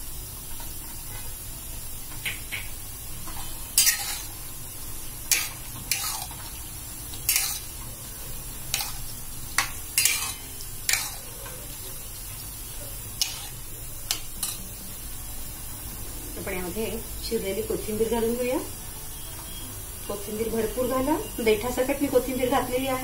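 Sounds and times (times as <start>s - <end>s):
metal spoon scraping pan: 3.8s - 4.4s, 5.3s - 6.4s, 7.2s - 7.7s, 8.7s - 11.6s, 13.2s - 14.7s.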